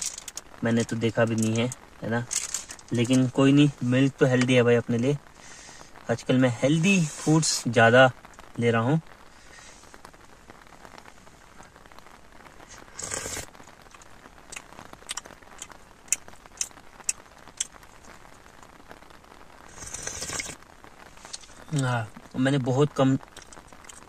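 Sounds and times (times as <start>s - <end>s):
person slurping from spoon: 13.0s - 13.5s, 19.7s - 20.6s.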